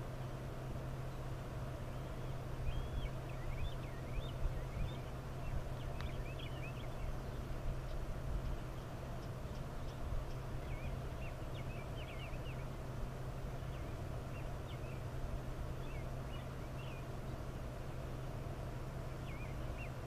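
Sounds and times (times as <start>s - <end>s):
low hum: 0.0s - 20.0s
small birds chirping: 0.0s - 20.0s.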